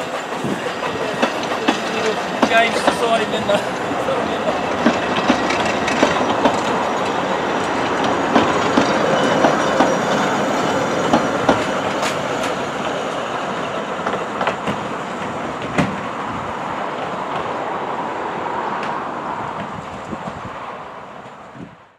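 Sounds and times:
train wheels clicking over rail joints: 0.0s - 16.2s.

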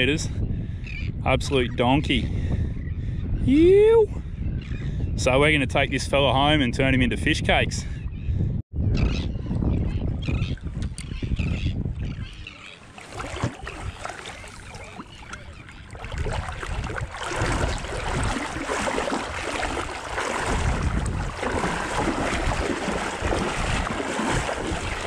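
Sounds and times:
wind buffeting microphone: 0.0s - 25.0s
shallow water sloshing and splashing: 12.3s - 25.0s.

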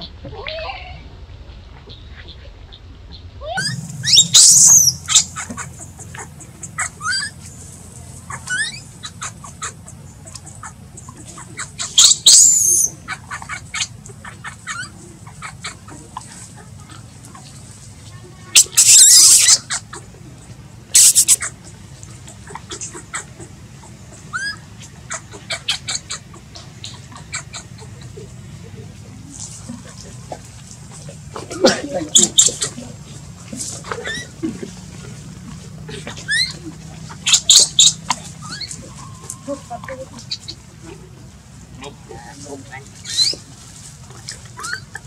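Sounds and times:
baby monkey shrill squeals: 3.6s - 7.4s, 8.3s - 9.7s, 11.6s - 13.9s, 18.6s - 19.8s, 21.0s - 21.5s, 24.3s - 26.2s, 34.0s - 34.4s, 36.3s - 36.6s, 37.2s - 40.5s, 43.0s - 43.4s, 44.6s - 45.0s
baby monkey whimpers: 3.6s - 7.4s, 8.3s - 9.9s, 18.6s - 19.9s, 21.0s - 21.5s, 24.3s - 26.2s, 33.8s - 34.5s, 35.9s - 40.4s.

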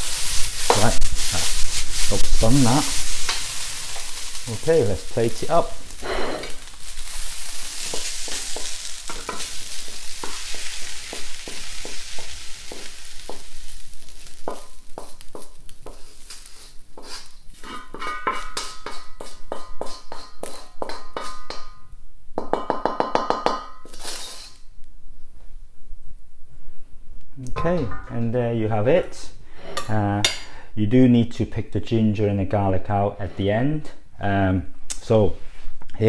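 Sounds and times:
wooden spatula scraping a wok: 0.0s - 21.3s
hot rice sizzling: 0.0s - 21.6s.

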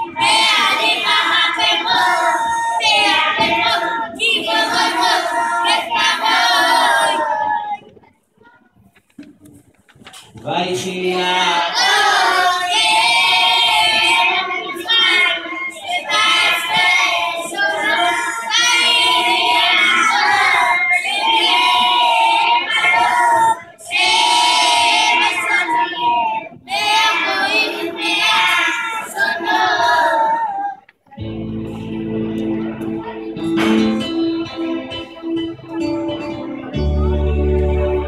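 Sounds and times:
boys choir singing: 0.0s - 7.8s, 10.5s - 30.9s.

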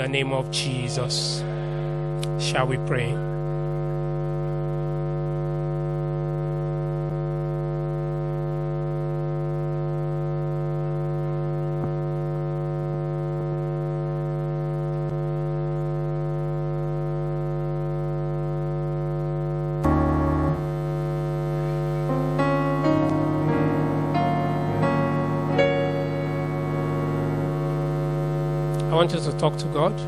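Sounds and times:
electronic keyboard chord: 19.8s - 29.2s.

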